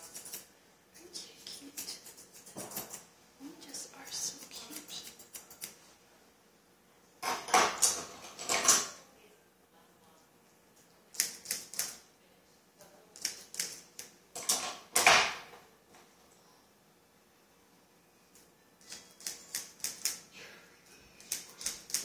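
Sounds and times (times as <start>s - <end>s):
scissors snipping hair: 0.0s - 0.5s, 1.4s - 3.1s, 3.7s - 5.9s, 10.8s - 12.0s, 13.1s - 14.2s, 18.4s - 20.3s, 21.2s - 22.0s.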